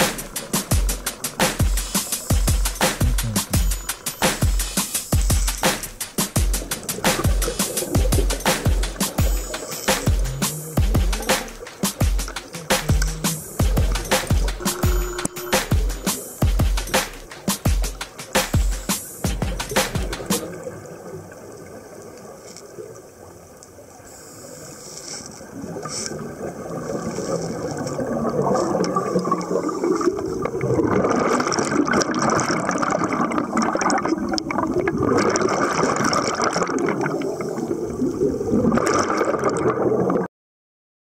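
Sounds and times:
underwater air bubbles gurgling: 25.5 - 40.3.

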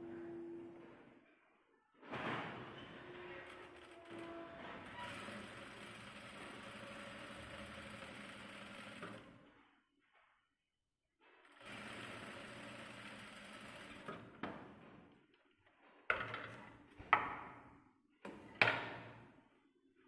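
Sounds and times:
sewing machine stitching: 3.0 - 9.6, 11.3 - 14.8.

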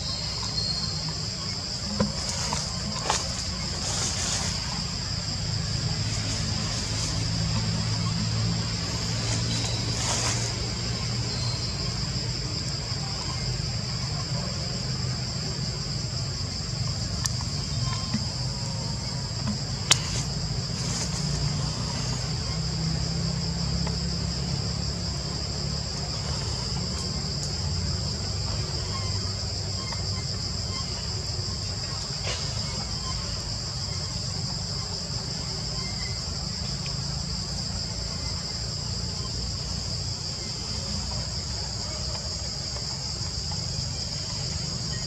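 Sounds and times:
insects droning: 0.0 - 45.0.

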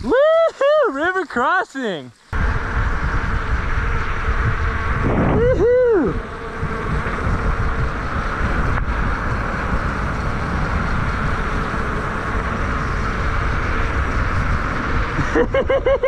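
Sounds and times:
bike tyre hiss: 0.0 - 16.0
wind rumble on microphone: 2.3 - 16.0.

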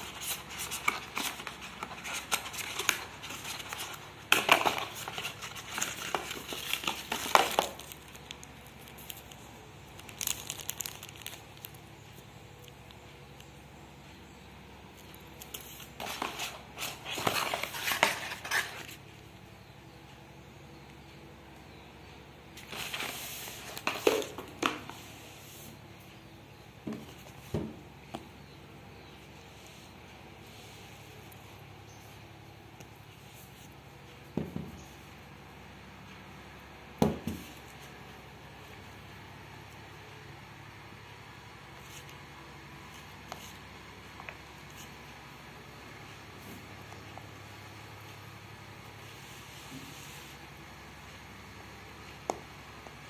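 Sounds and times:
paper rustling: 0.0 - 11.8, 15.0 - 19.0, 22.6 - 25.8
cardboard and plastic crinkling: 0.0 - 13.0, 15.0 - 19.0, 22.6 - 25.1.

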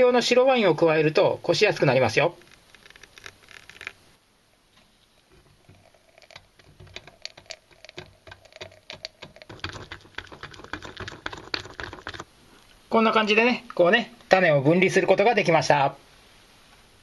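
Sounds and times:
wine trickling: 1.2 - 4.1, 4.8 - 13.0
pulp squishing through mesh strainer: 5.3 - 12.7.

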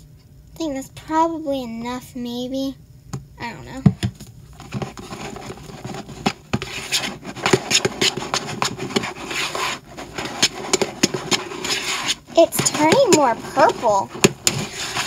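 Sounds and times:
spatula squishing and scraping: 4.6 - 15.0.

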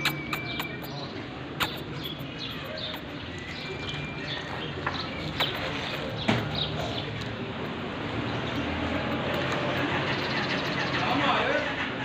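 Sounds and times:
sharp clicks: 0.0 - 1.0, 1.6 - 3.6.

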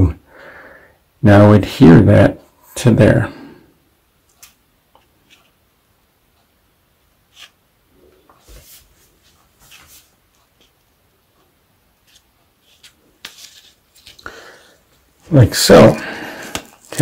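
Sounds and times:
plastic wafer rustling and clicking: 4.3 - 5.6, 7.3 - 7.6, 9.3 - 14.3, 16.4 - 17.0.

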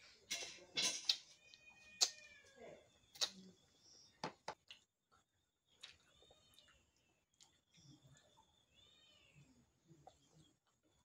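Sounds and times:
lip smacks and clicks: 3.1 - 3.5
wet smacking and chewing: 4.6 - 8.6.

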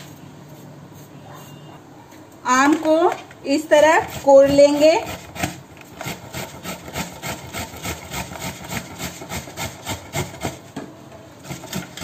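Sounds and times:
mango scraping on metal grater: 3.7 - 10.7, 11.4 - 12.0.

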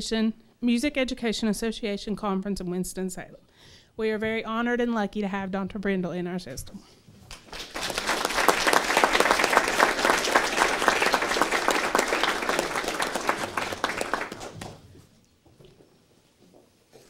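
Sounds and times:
audience applauding: 7.3 - 14.9.

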